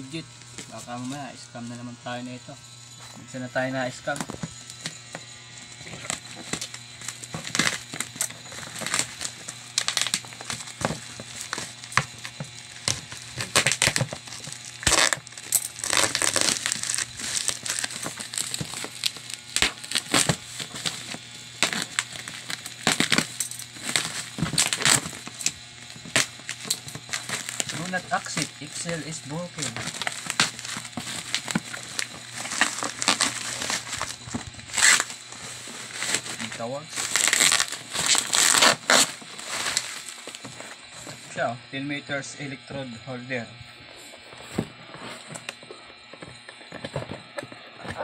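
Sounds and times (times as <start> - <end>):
plastic wrapping torn and crinkled: 4.1 - 41.2.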